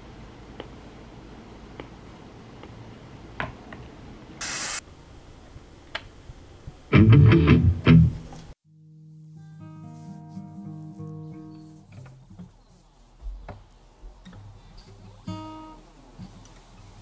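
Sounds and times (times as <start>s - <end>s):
brief hiss: 4.4s - 4.9s
electric guitar strum: 6.9s - 8.3s.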